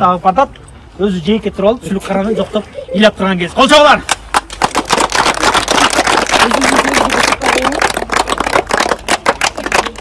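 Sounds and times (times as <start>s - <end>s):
crowd applauding: 4.3s - 10.0s.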